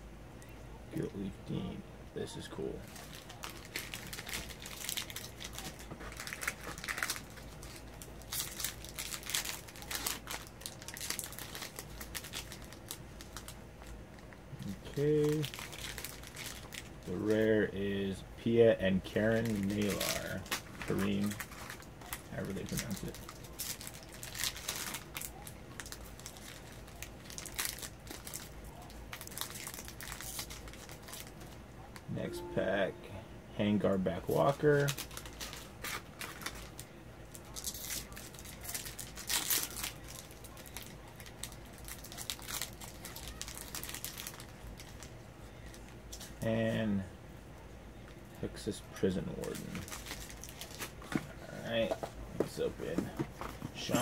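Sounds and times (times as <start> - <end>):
foil wrapper crinkling: 2.8 - 14.0, 14.6 - 17.9, 19.1 - 31.6, 34.3 - 46.4, 49.3 - 51.8
foil pack tearing open: 2.9 - 13.6, 19.2 - 28.5, 29.1 - 31.4, 37.4 - 45.0.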